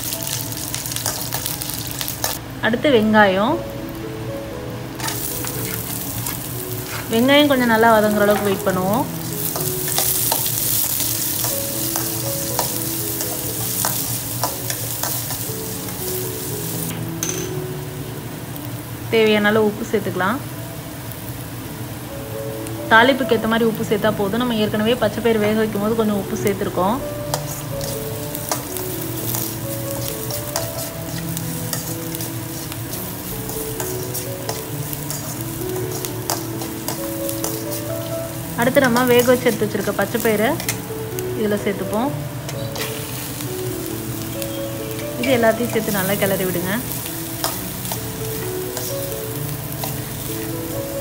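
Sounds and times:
onions sizzling in hot oil: 0.0 - 51.0
metal ladle scraping pan: 5.0 - 7.3
metal spoon scraping a pan: 5.0 - 7.3, 9.3 - 11.1, 27.3 - 38.1, 40.6 - 40.9, 42.5 - 43.1.

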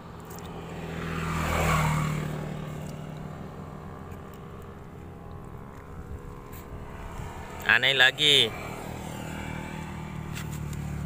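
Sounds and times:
vehicle engine passing by: 0.0 - 11.0.

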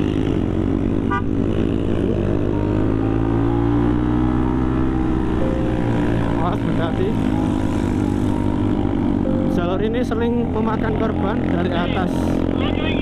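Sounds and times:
motorcycle engine accelerating: 0.0 - 13.0.

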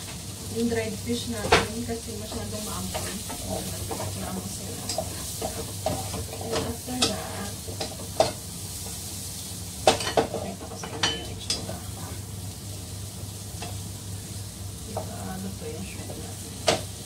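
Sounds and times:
food sizzling in hot oil: 0.0 - 17.0
wooden spatula scraping a pan: 1.3 - 9.0.

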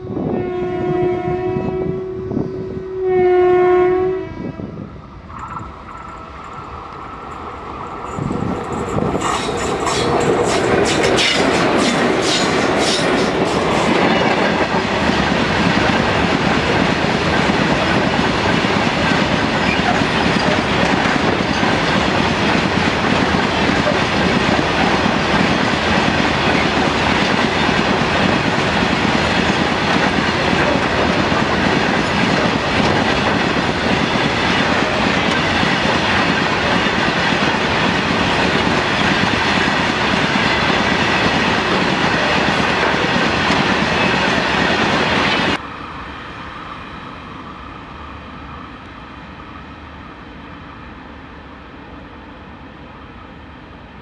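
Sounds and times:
train wheels clattering on rail joints: 5.7 - 45.6.

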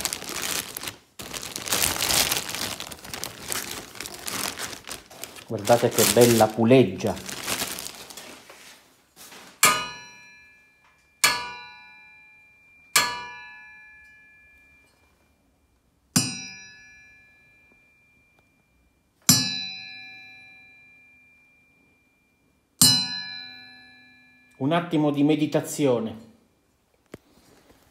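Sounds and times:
metal pulley struck ringing: 9.6 - 14.9.

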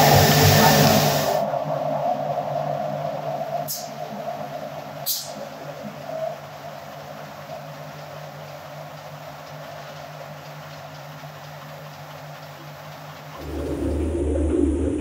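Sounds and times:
deeper hum: 0.0 - 3.6, 13.4 - 15.0
constant machine hum: 0.0 - 15.0.

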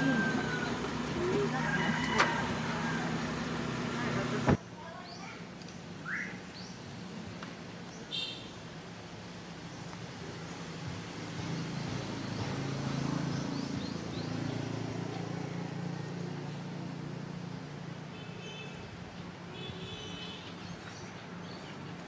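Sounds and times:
vehicle engine passing: 0.0 - 4.6, 10.6 - 18.1.

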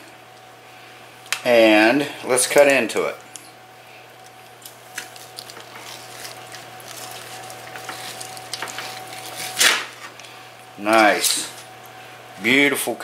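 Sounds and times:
knife sawing through crusty meat: 5.8 - 9.6.

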